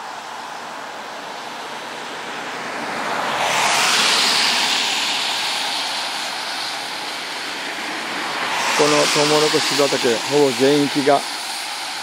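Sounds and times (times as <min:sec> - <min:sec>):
vehicle tyre hiss passing: 0:00.0 - 0:12.0.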